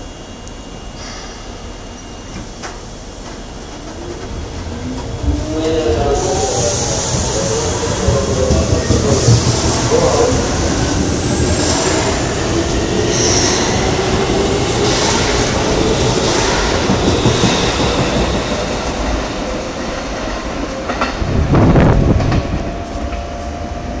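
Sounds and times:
electric train motor whine: 0.0 - 19.4.

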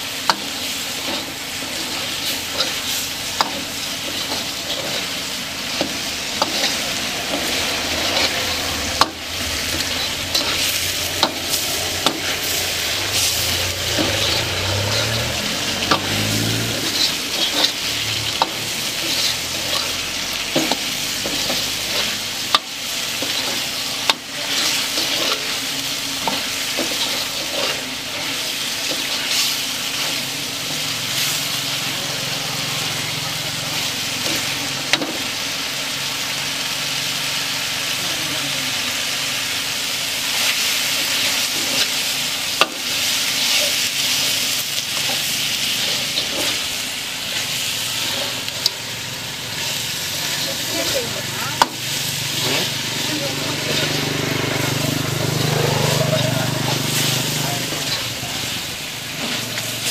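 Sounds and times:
food sizzling in a pan: 0.0 - 59.9
metal ladle scraping: 1.0 - 22.6.

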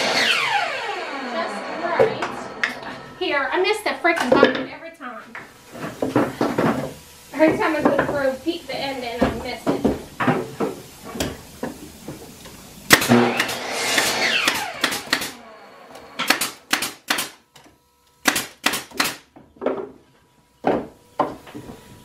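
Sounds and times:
nail gun firing: 12.9 - 17.4, 18.2 - 19.3.

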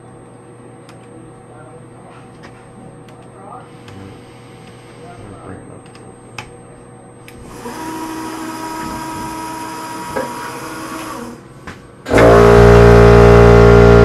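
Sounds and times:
loud steady machine drone: 7.0 - 14.0
milling machine motor whine: 7.3 - 14.0.

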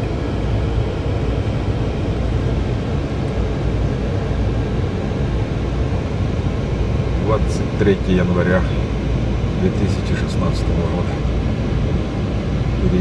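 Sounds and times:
car engine and road rumble: 0.0 - 13.0.

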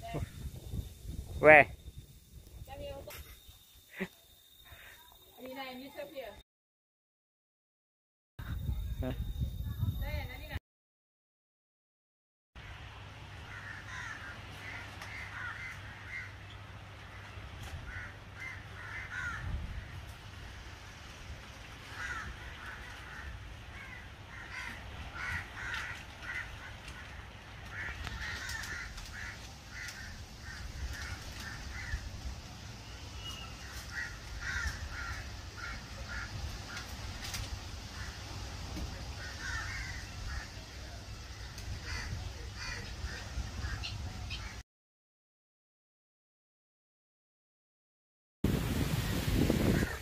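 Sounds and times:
birds calling: 13.5 - 20.0, 21.9 - 32.1, 32.8 - 44.6.

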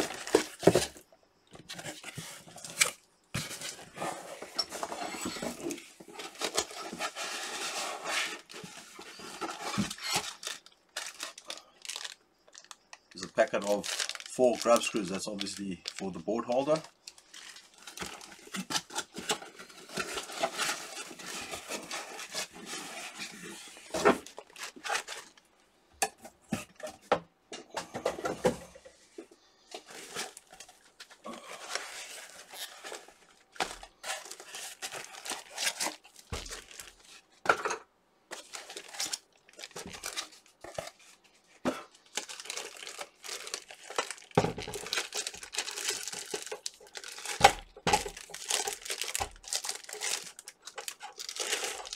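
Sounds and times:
plastic packaging crinkling: 8.4 - 25.5, 29.8 - 37.2, 38.3 - 51.9.

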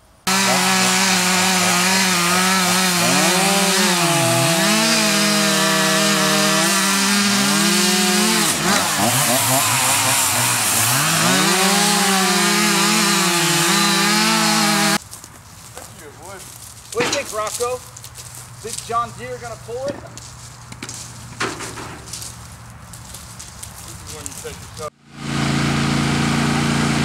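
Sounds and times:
chainsaw cutting a log: 0.3 - 15.0, 24.0 - 27.0.

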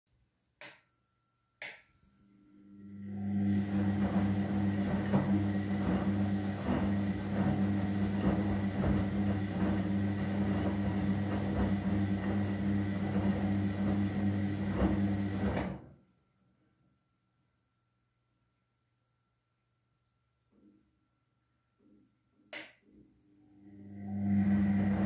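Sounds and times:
washing machine motor hum: 2.4 - 15.9, 23.3 - 25.0.

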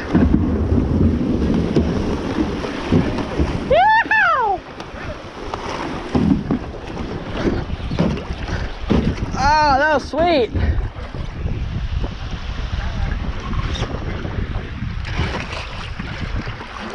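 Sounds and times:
paddle knocks: 0.0 - 9.8
water rushing around kayak: 0.0 - 16.9
wind buffeting microphone: 0.0 - 16.9
person whooping: 3.7 - 4.6.

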